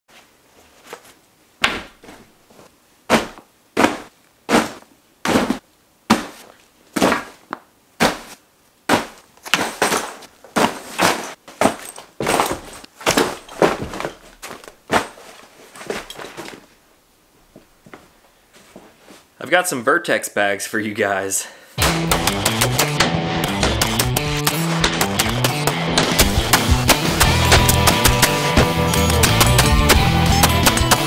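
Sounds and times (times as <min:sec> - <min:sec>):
bags thudding onto a bed: 0:03.1 - 0:07.4, 0:08.0 - 0:16.7.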